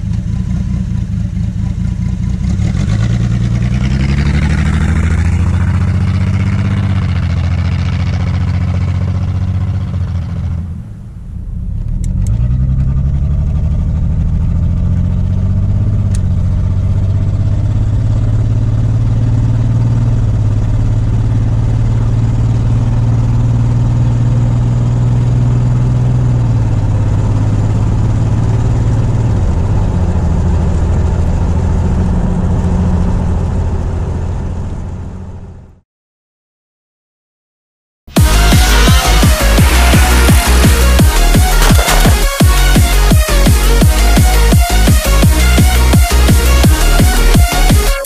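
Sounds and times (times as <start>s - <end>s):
car exhaust while driving: 0.0s - 35.8s.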